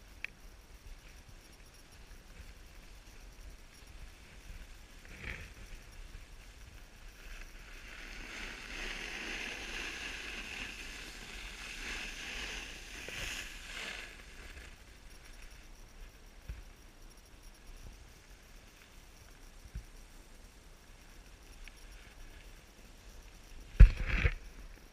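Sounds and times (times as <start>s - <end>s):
snowboard sliding over snow: 3.8s - 15.5s, 23.6s - 24.6s
snowboard scrape: 7.2s - 14.8s.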